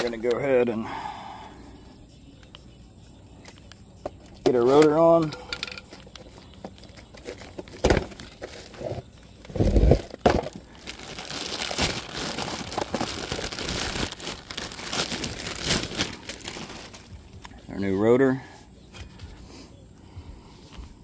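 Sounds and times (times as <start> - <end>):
plastic wrapping crinkling: 5.9 - 17.5.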